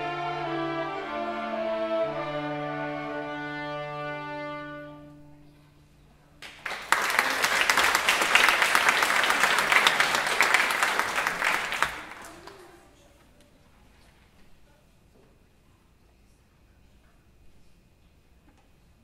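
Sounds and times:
violin ensemble chord: 0.0s - 5.4s
audience applauding: 6.4s - 12.9s.

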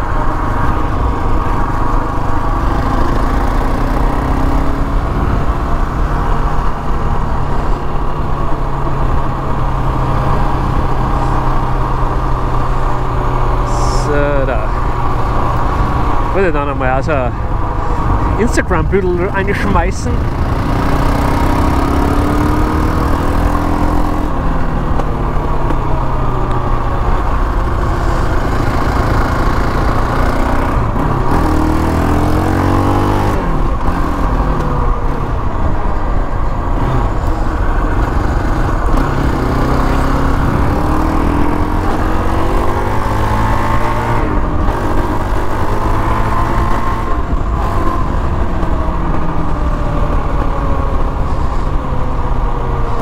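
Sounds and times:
quad bike engine revving: 0.8s - 6.3s, 18.3s - 24.3s, 27.8s - 34.6s, 36.8s - 48.4s.

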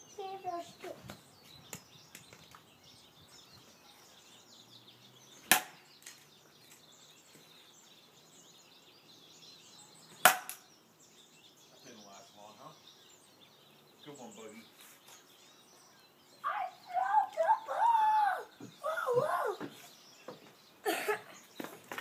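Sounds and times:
toy bat cracking a ball: 5.5s - 6.2s, 10.2s - 10.6s.

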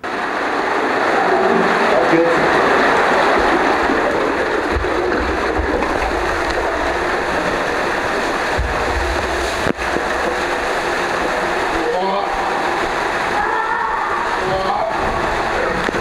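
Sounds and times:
water rushing through slide tube: 0.0s - 16.0s.

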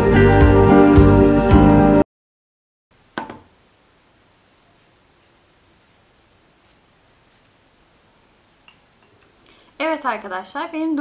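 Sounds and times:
guitar background music: 0.0s - 2.0s
wooden shelf knocking on table: 3.2s - 3.5s
paintbrush scraping on wood: 3.8s - 7.7s.

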